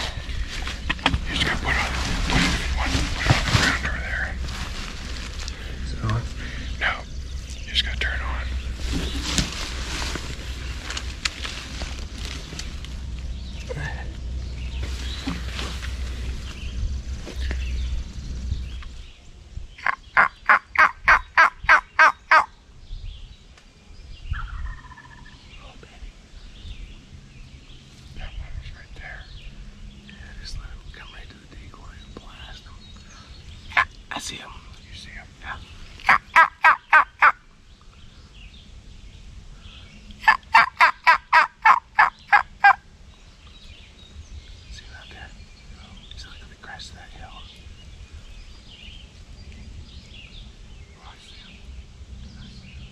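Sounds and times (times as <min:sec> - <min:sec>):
wild turkey calling: 0:19.8 - 0:22.5, 0:24.3 - 0:25.4, 0:33.6 - 0:34.4, 0:36.0 - 0:37.5, 0:40.2 - 0:42.8.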